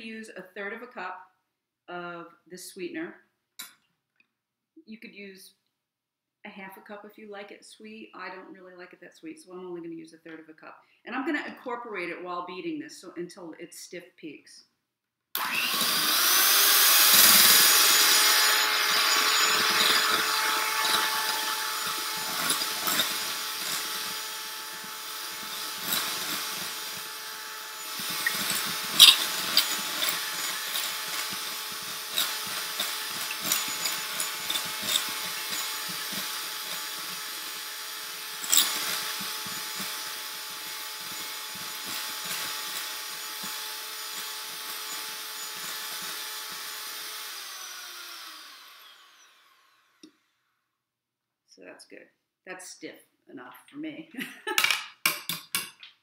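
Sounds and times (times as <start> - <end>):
electric hand mixer running: 15.4 - 50.2.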